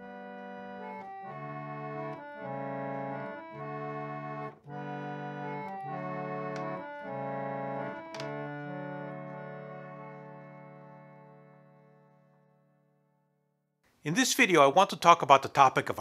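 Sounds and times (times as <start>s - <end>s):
reed organ playing chords: 0.0s - 12.8s.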